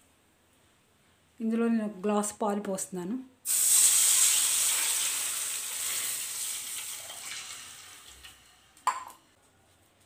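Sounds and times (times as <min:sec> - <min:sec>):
milk sizzling in hot pan: 0:03.4 - 0:08.9.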